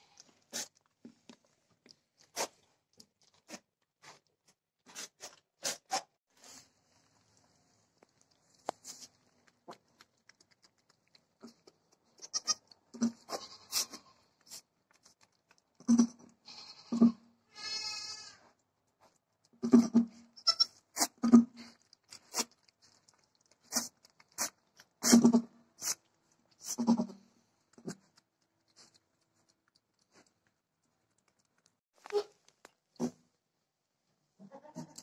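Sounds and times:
wet licking clicks: 0:07.9 - 0:13.1, 0:14.4 - 0:15.9, 0:21.0 - 0:25.2, 0:27.7 - 0:33.0
goat bleat: 0:12.2 - 0:14.2, 0:15.8 - 0:18.5, 0:19.6 - 0:21.5, 0:34.4 - 0:35.0.

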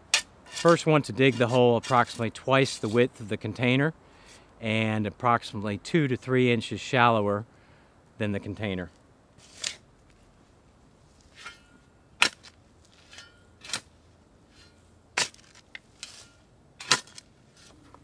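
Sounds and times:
shovel chopping and scraping soil: 0:00.0 - 0:03.0, 0:09.4 - 0:09.8, 0:11.3 - 0:17.8.

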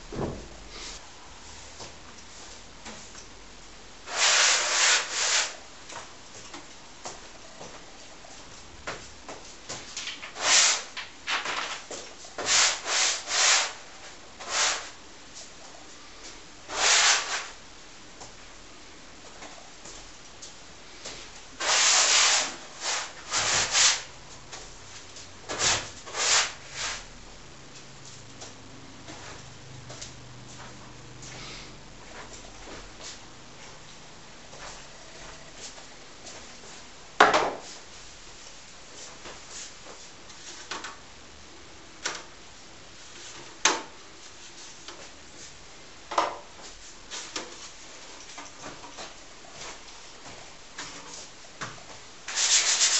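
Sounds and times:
tool scraping painted canvas: 0:04.1 - 0:05.6, 0:16.7 - 0:17.6, 0:21.6 - 0:24.1, 0:25.5 - 0:27.0, 0:52.3 - 0:52.9.

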